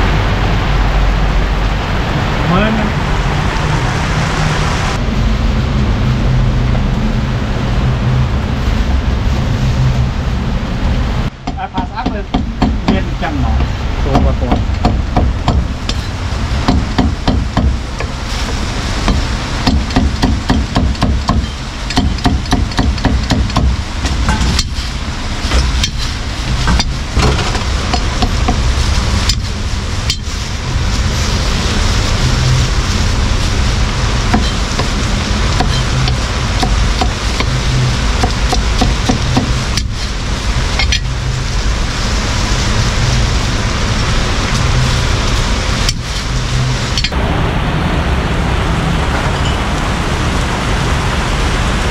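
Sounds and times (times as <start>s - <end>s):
cleaver chopping on wooden block: 11.4s - 13.0s.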